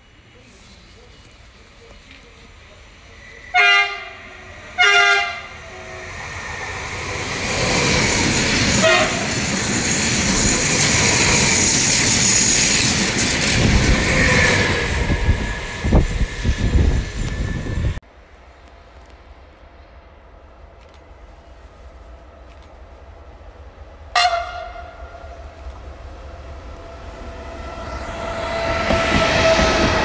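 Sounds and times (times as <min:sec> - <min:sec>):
train running past: 0:00.0 - 0:30.0
train horn blasts: 0:03.5 - 0:06.1, 0:08.8 - 0:09.4, 0:24.1 - 0:25.2.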